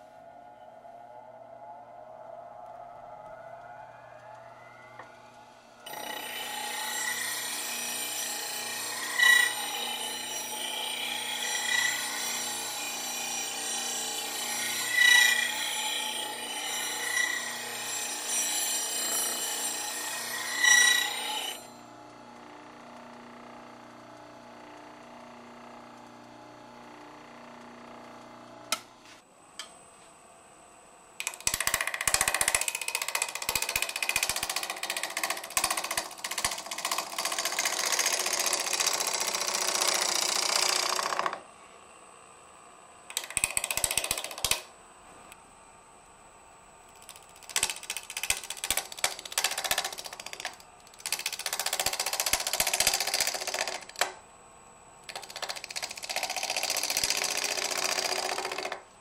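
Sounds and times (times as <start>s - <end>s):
grinder squeal: 4.3s - 21.8s
wood lathe cutting with ticking: 5.9s - 21.7s, 31.2s - 41.4s, 43.1s - 44.6s, 47.1s - 54.1s, 55.1s - 58.8s
bench grinder grinding metal: 5.9s - 21.8s, 31.2s - 41.4s.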